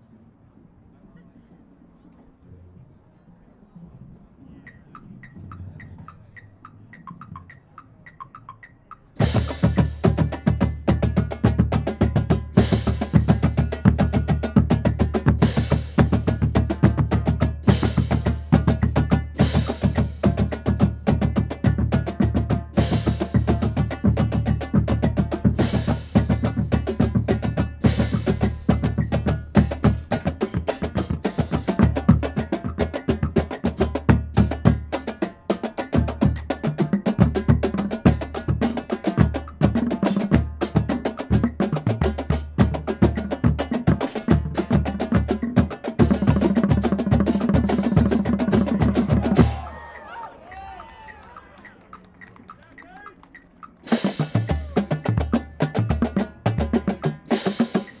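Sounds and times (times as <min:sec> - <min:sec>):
marching drumline playing: 0:04.9 - 0:58.0.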